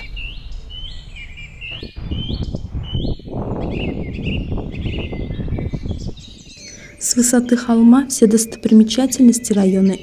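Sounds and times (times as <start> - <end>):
low rumble: 0.0 - 6.6
birds twittering: 0.0 - 10.0.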